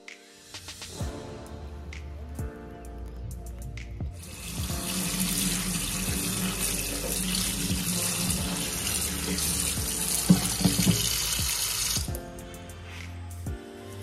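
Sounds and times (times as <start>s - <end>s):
tap water running into sink: 4.2s - 12.1s.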